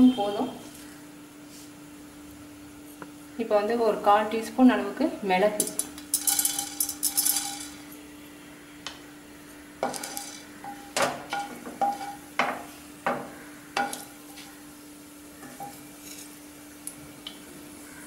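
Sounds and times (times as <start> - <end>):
faint steady hum: 0.0 - 18.0
spices clinking in a pan: 5.6 - 7.9, 9.8 - 14.7, 15.4 - 17.0.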